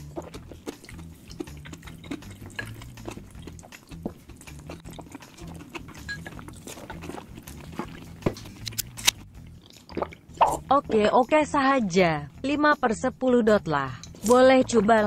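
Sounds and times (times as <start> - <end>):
sticky paste stirred wet clicks: 0.0 - 10.4
mouth chewing sounds: 0.0 - 10.7.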